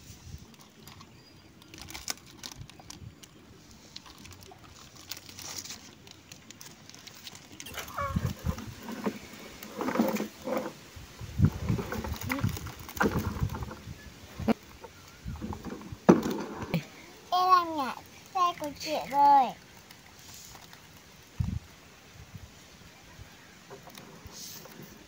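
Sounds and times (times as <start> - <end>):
plastic wrapper crinkling: 0.5 - 8.9, 19.6 - 21.3
knocks and rustles: 7.2 - 14.0, 14.8 - 16.8.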